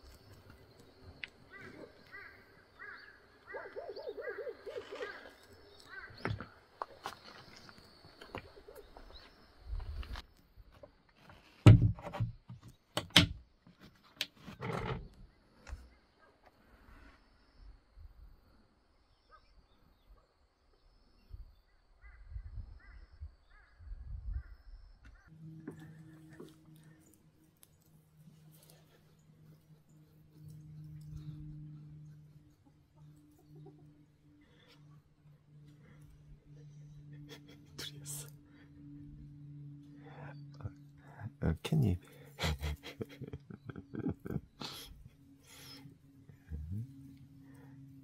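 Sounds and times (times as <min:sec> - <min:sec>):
bird chirping: 0:00.0 - 0:10.0
birds chirping: 0:00.0 - 0:10.4, 0:19.0 - 0:48.0
steady low hum: 0:20.8 - 0:48.0.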